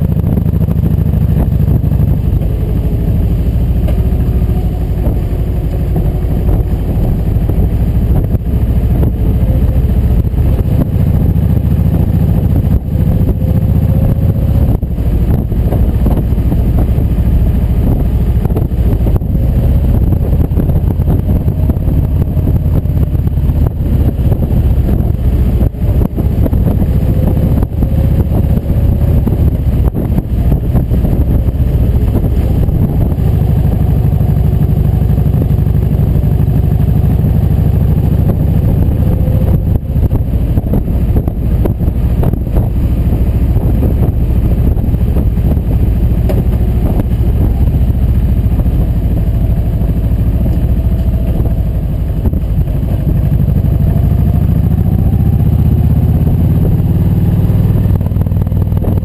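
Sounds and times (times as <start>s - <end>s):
motorcycle engines cruising: 0.0s - 59.0s
wind rumbling over microphone: 0.0s - 59.0s.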